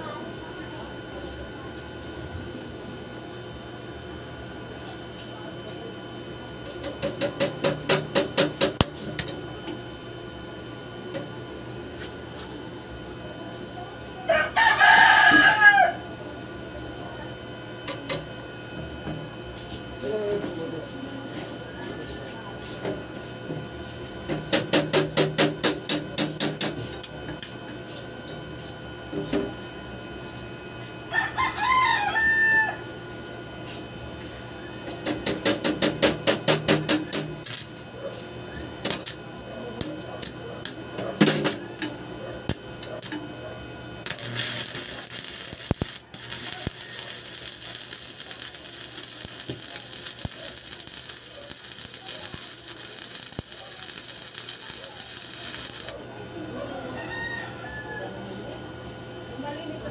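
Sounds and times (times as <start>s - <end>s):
rooster crowing: 14.3s - 16.1s, 31.1s - 33.0s, 45.9s - 48.5s, 56.6s - 58.4s
welding arc hissing: 36.2s - 37.7s, 44.0s - 56.1s.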